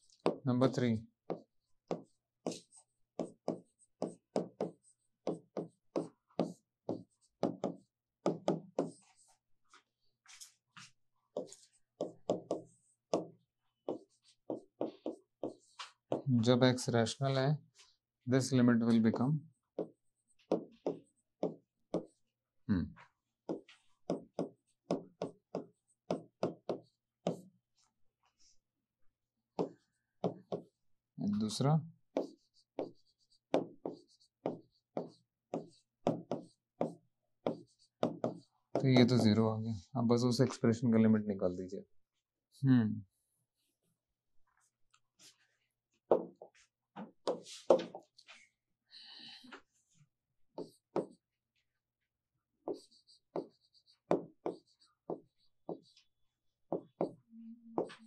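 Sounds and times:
chalk writing on blackboard: 0.0s - 16.3s, 17.8s - 22.3s, 23.5s - 27.6s, 29.6s - 30.8s, 31.4s - 39.9s, 46.1s - 48.4s, 50.6s - 51.3s, 52.6s - 56.1s, 56.7s - 57.2s, 57.8s - 58.0s.

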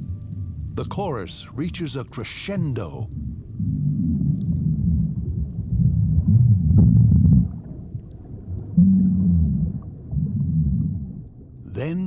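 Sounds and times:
long steady low call: 0.0s - 6.7s, 11.6s - 12.0s
fish grunts and calls underwater: 0.0s - 12.0s.

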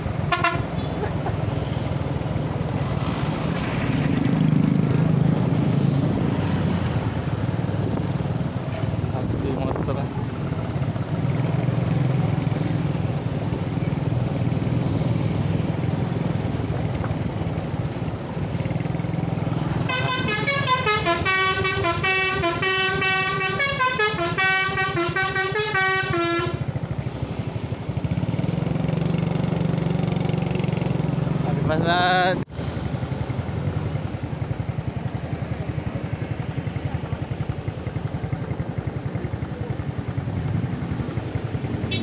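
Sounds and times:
road traffic rumble: 0.0s - 42.0s
bus multi-tone horn melody: 0.2s - 1.0s, 19.8s - 26.8s.

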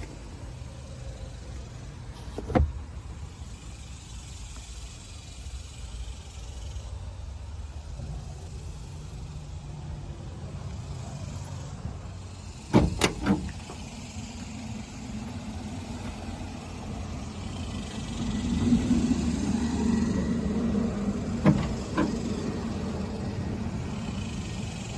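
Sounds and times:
truck door clunking shut: 12.7s - 13.8s, 21.4s - 22.3s.

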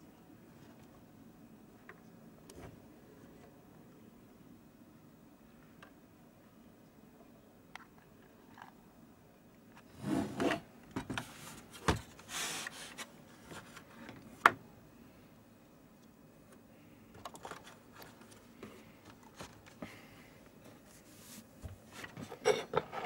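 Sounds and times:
objects rubbing and scraping: 9.9s - 10.7s.

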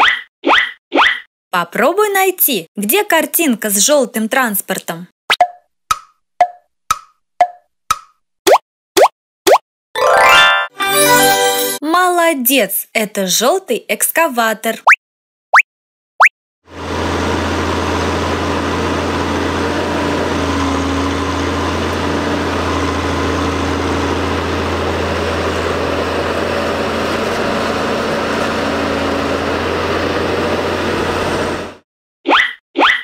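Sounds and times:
diesel engine humming: 16.7s - 31.8s.

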